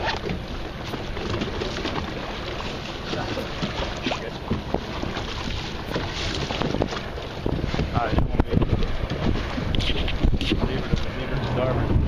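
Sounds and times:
water slapping against boat hull: 0:00.0 - 0:12.0
wind on microphone: 0:03.2 - 0:12.0.

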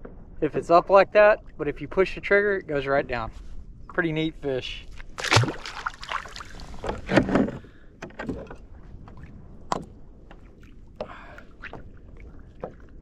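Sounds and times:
wind: 0:00.0 - 0:13.0
water wash: 0:05.0 - 0:06.9.

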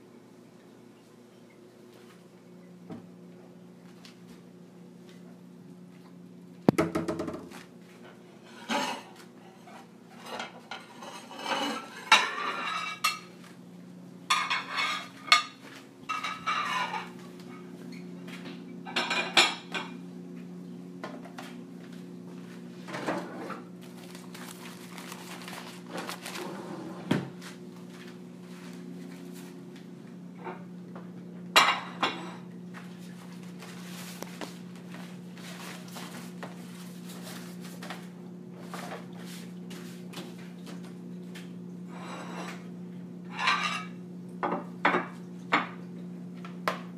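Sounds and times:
pots and cutlery clattering: 0:10.2 - 0:13.3, 0:14.3 - 0:17.1.

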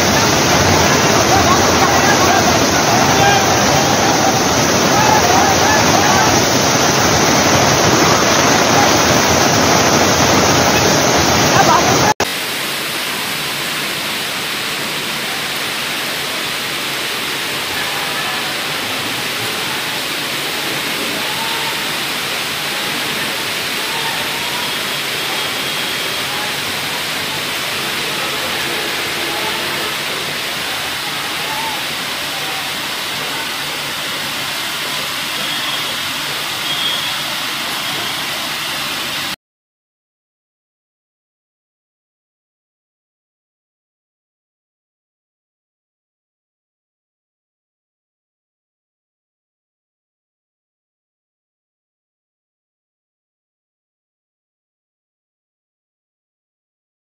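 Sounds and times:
faint voices: 0:00.0 - 0:12.2, 0:15.0 - 0:39.4
rain and floodwater rushing: 0:00.0 - 0:39.4.

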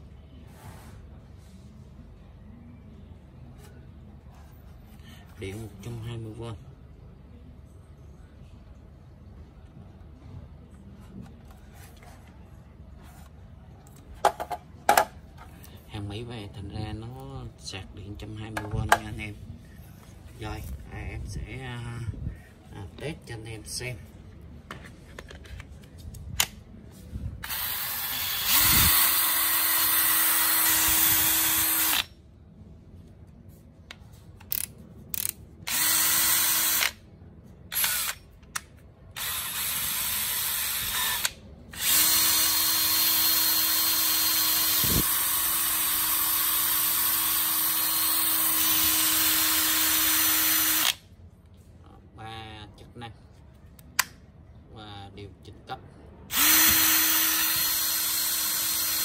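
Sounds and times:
cordless drill running: 0:27.4 - 0:32.1, 0:35.7 - 0:37.0, 0:37.7 - 0:38.2, 0:39.2 - 0:51.0, 0:56.3 - 0:59.0.

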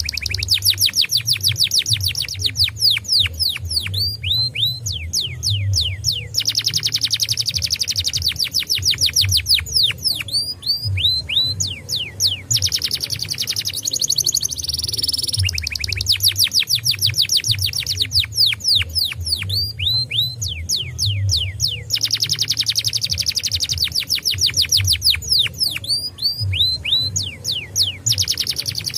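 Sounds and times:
canary singing trills: 0:00.0 - 0:28.9.

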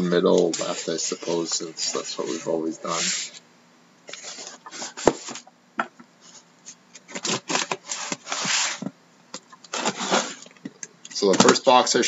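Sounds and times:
scraping tape on cardboard: 0:09.7 - 0:10.5.

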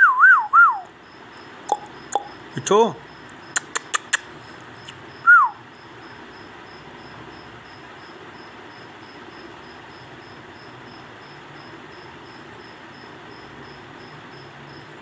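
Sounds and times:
falling whistle: 0:00.0 - 0:00.9, 0:05.2 - 0:05.6
sharp clicks: 0:03.3 - 0:04.3.

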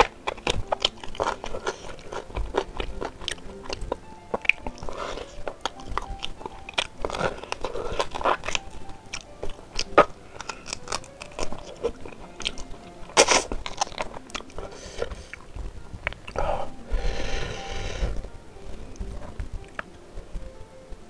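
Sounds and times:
wet smacks and clicks: 0:00.0 - 0:14.7
loud crunch: 0:00.0 - 0:15.4
chewing meat: 0:00.0 - 0:18.2.

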